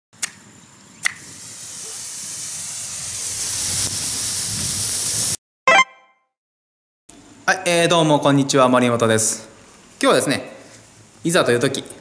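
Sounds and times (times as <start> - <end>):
flare burning with high hiss: 1.1 - 5.4
ringing pitched tone: 5.7 - 6.1.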